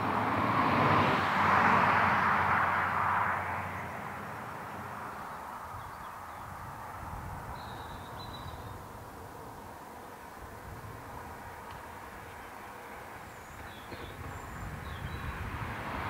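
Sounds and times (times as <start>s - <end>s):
distant steam train rumble: 4.3s - 16.0s.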